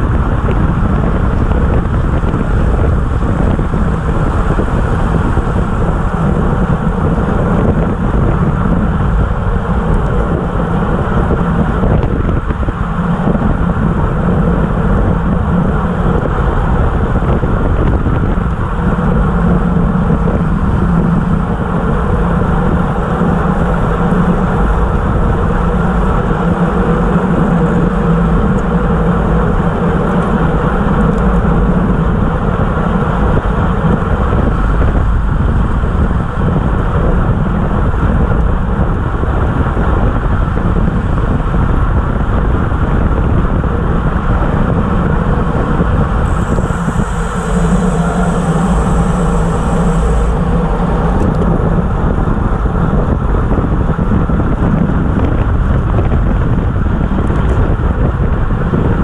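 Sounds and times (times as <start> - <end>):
tyre noise on asphalt: 0.0 - 59.0
wind rushing over microphone: 0.0 - 59.0
thin high whistle: 46.2 - 51.3.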